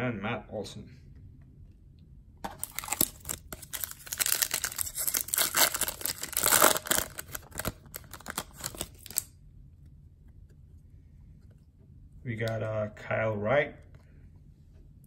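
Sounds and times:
foil wrapper crinkling and tearing: 0:02.5 - 0:09.3.

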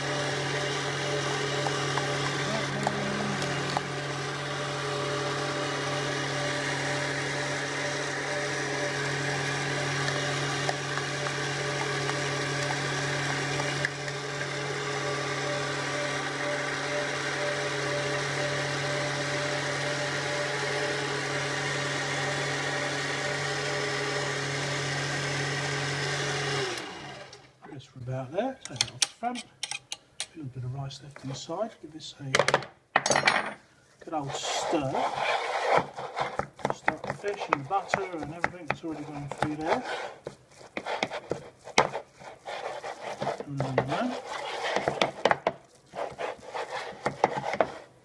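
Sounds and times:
stand mixer motor humming: 0:00.0 - 0:27.4.

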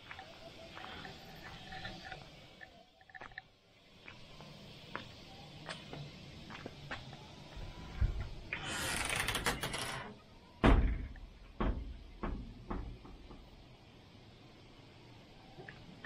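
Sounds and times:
door scraping open: 0:08.5 - 0:10.2
door knocks: 0:10.6 - 0:13.5.

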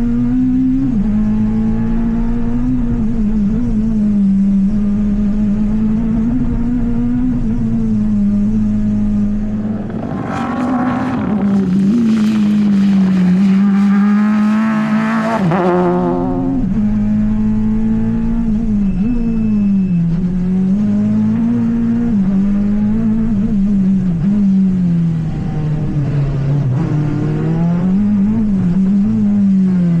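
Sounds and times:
rally car engine revving past: 0:08.5 - 0:30.0.

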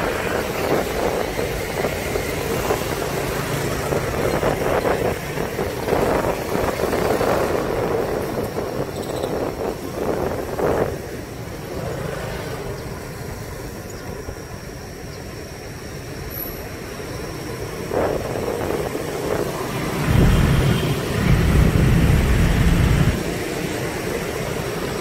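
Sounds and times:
scooter and car traffic hum: 0:00.0 - 0:25.0
low rumble: 0:20.1 - 0:23.2.

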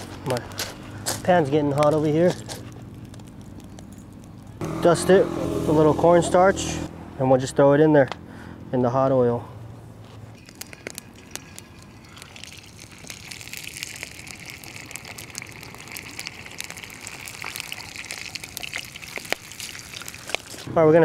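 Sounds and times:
hot oil sizzling and crackling: 0:10.4 - 0:20.7.

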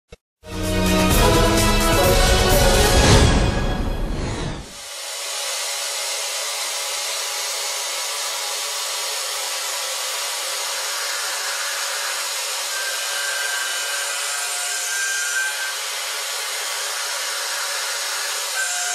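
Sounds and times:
milling machine cutting metal: 0:04.8 - 0:18.9.

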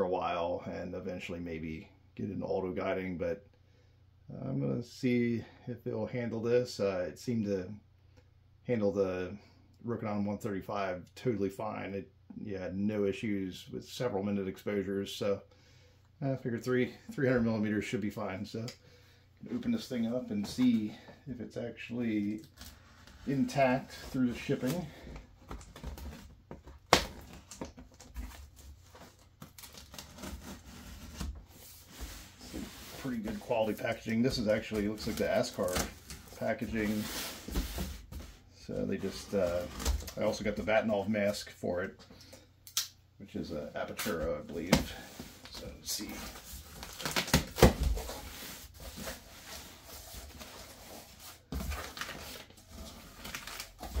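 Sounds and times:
rustling of box flaps and packing: 0:22.2 - 0:40.7, 0:43.9 - 0:54.0
tape and cardboard tearing: 0:29.4 - 0:31.4, 0:46.7 - 0:48.2
cardboard knocks and scrapes: 0:36.8 - 0:38.4.

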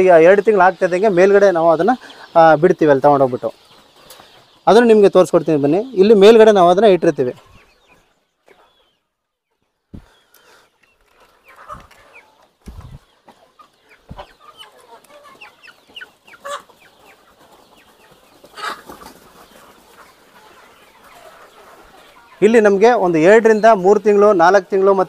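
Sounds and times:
chickens clucking: 0:00.0 - 0:25.0
low thumps: 0:12.6 - 0:13.0.

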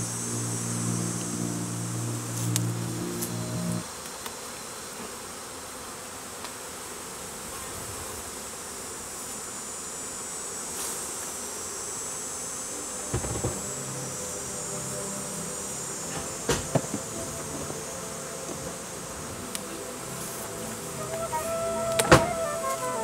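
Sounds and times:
bees buzzing: 0:00.0 - 0:23.0.

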